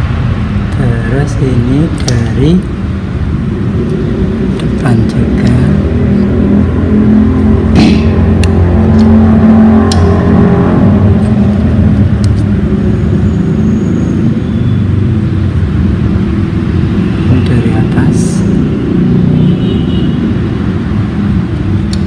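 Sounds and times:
low mechanical hum: 0:00.0 - 0:17.5.

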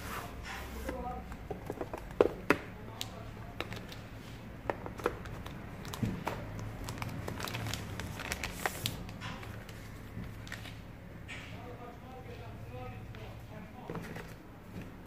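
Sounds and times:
plastic film crinkling: 0:04.9 - 0:10.8.

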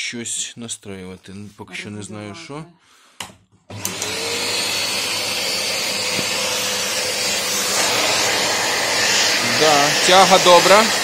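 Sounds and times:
vacuum cleaner motor whine: 0:03.7 - 0:11.0.

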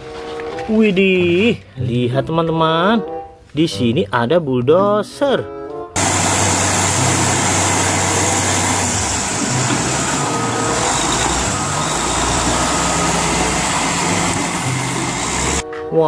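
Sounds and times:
heavy diesel machinery engines: 0:06.0 - 0:15.6.

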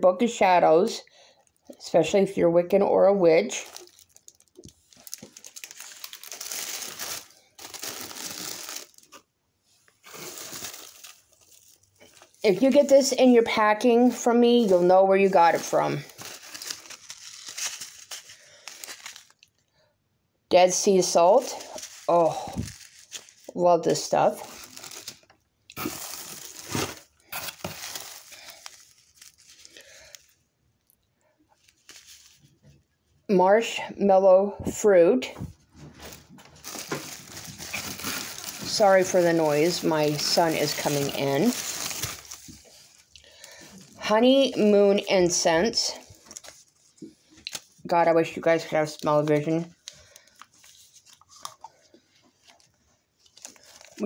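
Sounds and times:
paper rustling and crinkling: 0:03.5 - 0:09.2, 0:10.0 - 0:19.6, 0:21.1 - 0:30.4, 0:31.6 - 0:32.8, 0:35.8 - 0:44.1, 0:45.5 - 0:47.8, 0:48.9 - 0:51.6, 0:52.3 - 0:54.0.

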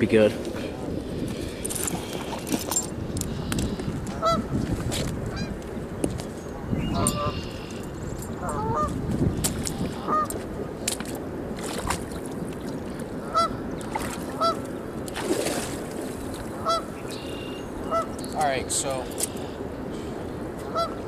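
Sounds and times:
geese honking: 0:06.9 - 0:07.8, 0:13.3 - 0:13.6, 0:14.4 - 0:14.6, 0:16.6 - 0:18.2, 0:20.7 - 0:21.0.

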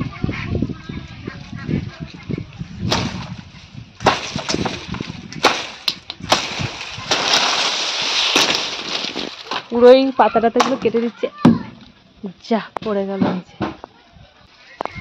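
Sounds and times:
palm leaves rustling: 0:02.0 - 0:11.2
blade chopping palm fronds: 0:02.9 - 0:09.8.

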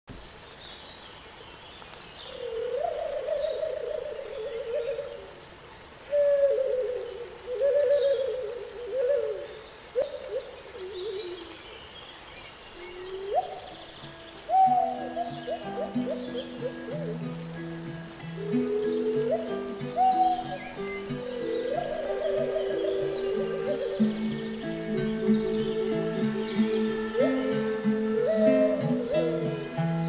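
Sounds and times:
flute-like sliding melody: 0:18.4 - 0:30.0.

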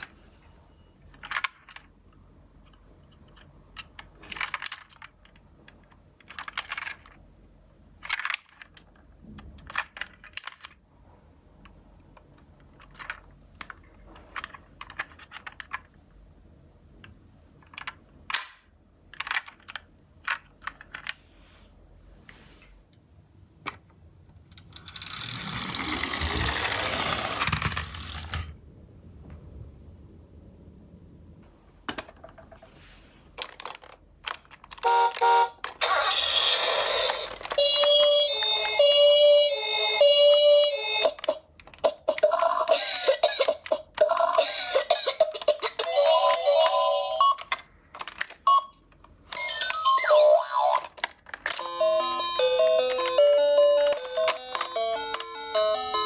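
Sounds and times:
toy van clicks and clacks: 0:01.0 - 0:10.8, 0:11.6 - 0:16.1, 0:17.0 - 0:21.2, 0:23.7 - 0:28.6, 0:33.4 - 0:56.0
toy wheels and motor whirring: 0:24.7 - 0:28.4, 0:34.7 - 0:47.6, 0:49.3 - 0:56.0.

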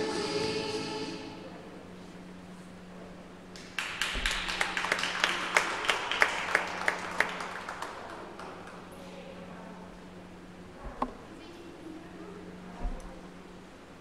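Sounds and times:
low steady hum: 0:00.0 - 0:14.0
people clapping: 0:03.5 - 0:09.1.

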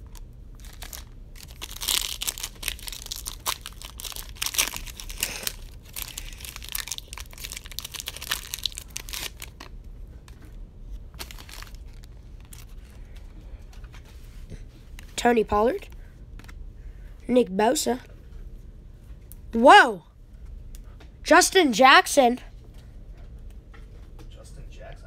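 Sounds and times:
foil wrapper crinkling and tearing: 0:00.1 - 0:09.8, 0:11.1 - 0:12.8.

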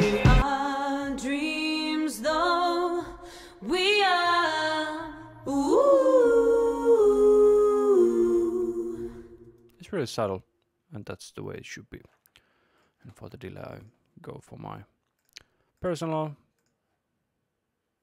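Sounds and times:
female vocal harmonies a cappella: 0:00.0 - 0:09.7.

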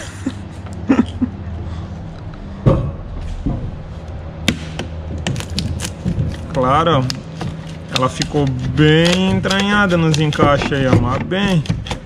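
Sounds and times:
steady low hum: 0:00.0 - 0:12.0
knocks on pump and hull: 0:06.0 - 0:12.0.

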